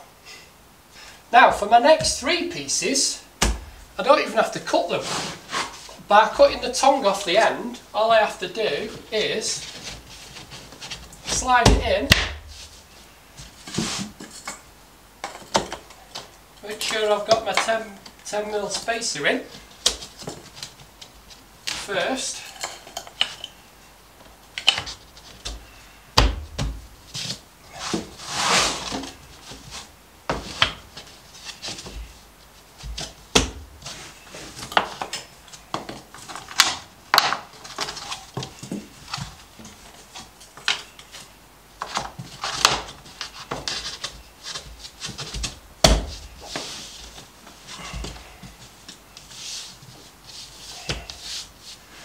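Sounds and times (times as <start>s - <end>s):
boards scraping: 3.4s - 7.7s, 8.6s - 14.5s, 24.6s - 52.0s.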